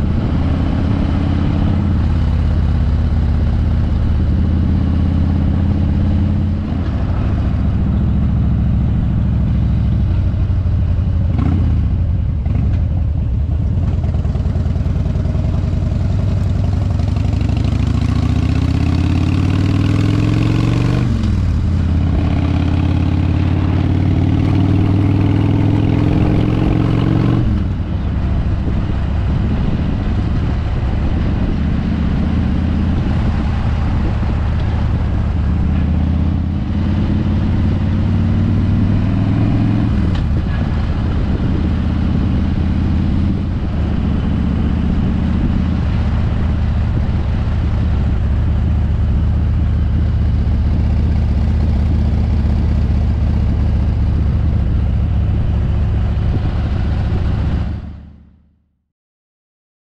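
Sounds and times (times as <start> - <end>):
motorcycle engine revving: 0.0 - 58.4
wind rushing: 18.7 - 50.4.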